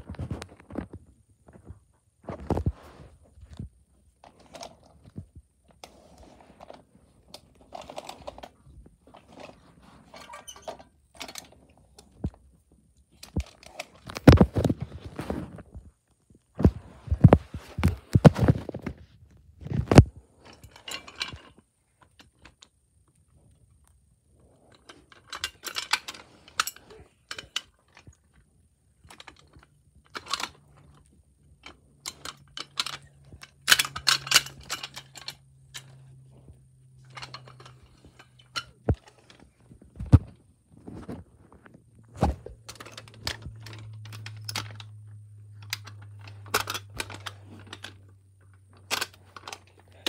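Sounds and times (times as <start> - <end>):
toys clicking and rattling: 5.8 - 12.5, 13.2 - 15.1, 24.6 - 28.4, 29.0 - 36.0, 37.0 - 40.4, 42.3 - 50.0.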